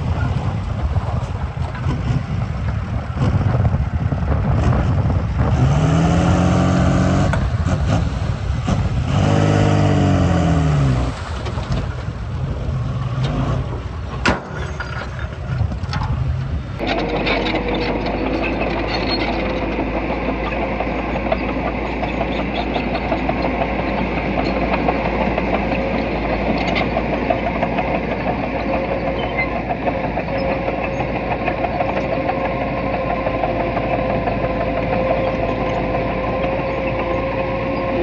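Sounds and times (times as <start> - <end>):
constant hum: 0.0 - 38.0
diesel engine running: 0.0 - 38.0.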